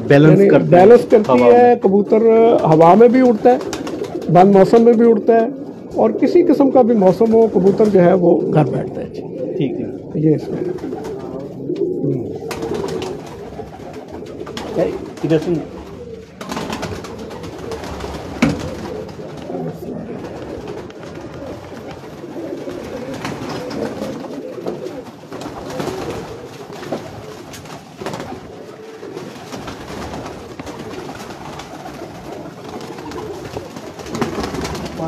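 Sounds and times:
pigeons cooing: 0.0s - 35.0s.

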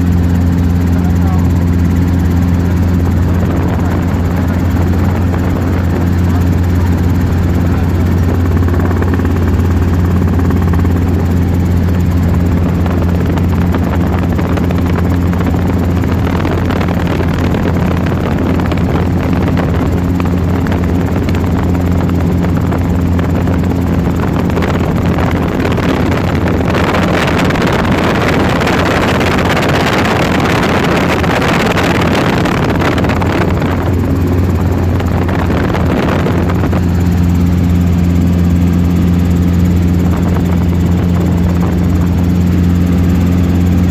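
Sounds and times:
helicopter rotor and engine drone: 0.0s - 43.9s
rushing air noise: 24.2s - 43.9s.

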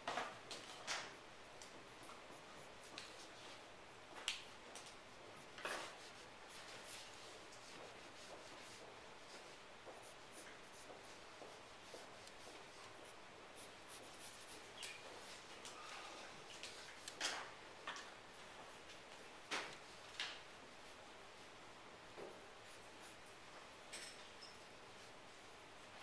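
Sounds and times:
pencil scratching on paper: 5.4s - 15.3s.

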